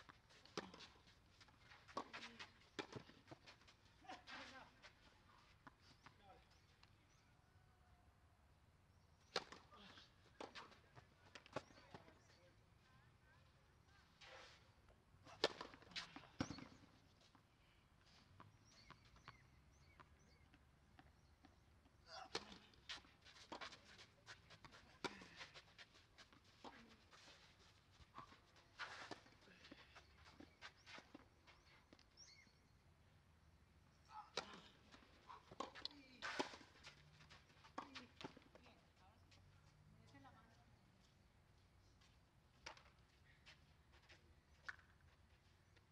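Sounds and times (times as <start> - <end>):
ball bouncing on clay court: 15.3 - 16.9, 37.6 - 38.8
bird chirping: 18.5 - 21.6, 30.0 - 32.8.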